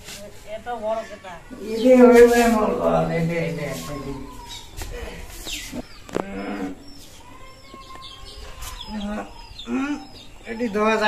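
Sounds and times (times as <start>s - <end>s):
small birds chirping: 0.5s - 11.0s.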